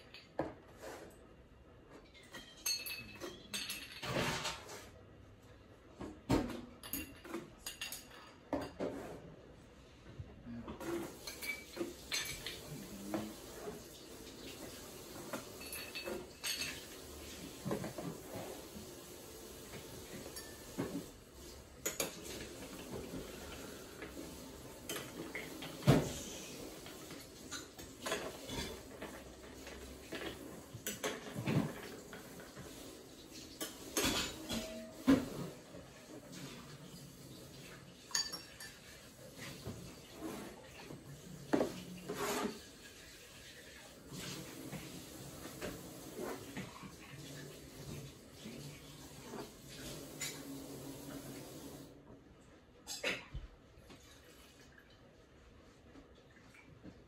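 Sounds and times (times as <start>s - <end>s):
ice clinking on glass and metal: 2.1s - 4.4s, 11.2s - 12.8s, 15.3s - 17.1s, 38.1s - 38.9s.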